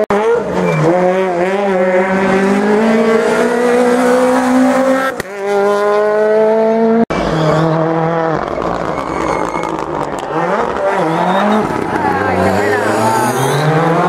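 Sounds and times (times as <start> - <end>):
rally car engine revving: 0.0 - 14.0.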